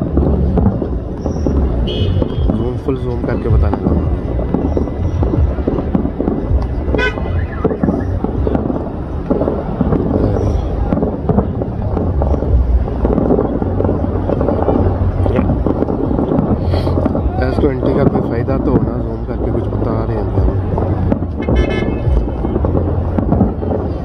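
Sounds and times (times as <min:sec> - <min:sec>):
fireworks bursting and crackling: 0:00.0 - 0:24.0
din of many voices: 0:09.4 - 0:24.0.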